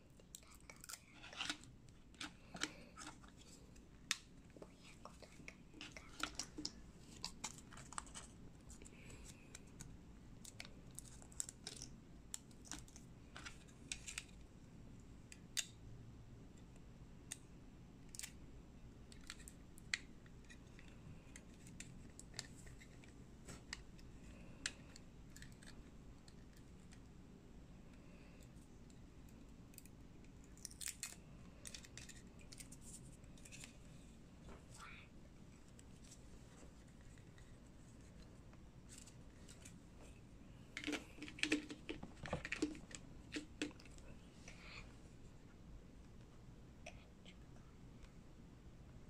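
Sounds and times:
faint low hum: 0.0 - 49.0.

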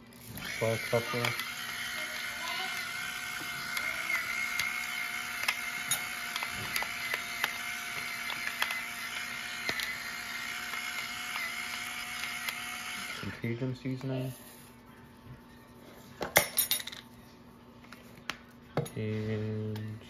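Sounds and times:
electric pepper grinder whine: 0.0 - 13.6
pepper grinder clicks: 0.4 - 13.2.

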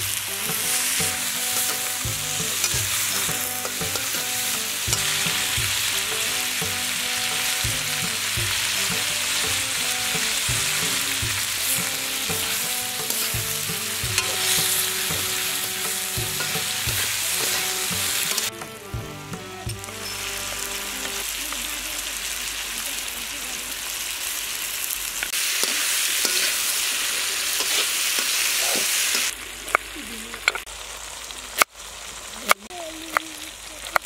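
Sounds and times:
food sizzling in a metal pan: 0.0 - 34.0
metal ladle scraping pan: 11.6 - 18.5.

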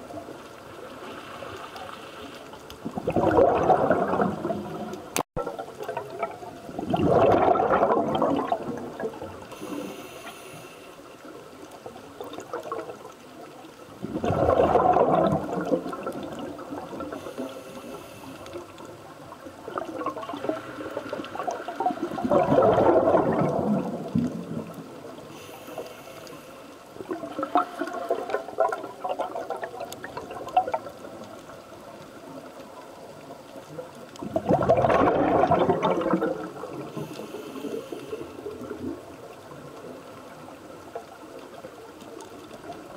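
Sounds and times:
exhaled bubbles gushing: 2.8 - 9.8, 11.8 - 17.7, 18.5 - 25.4, 27.0 - 42.9
regulator inhalation hiss: 9.5 - 11.2, 17.2 - 18.5, 25.3 - 26.8, 37.0 - 38.4.

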